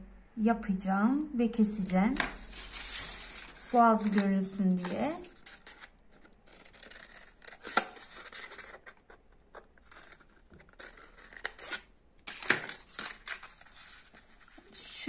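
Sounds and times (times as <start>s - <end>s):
scissors snipping paper: 1.9s - 13.8s.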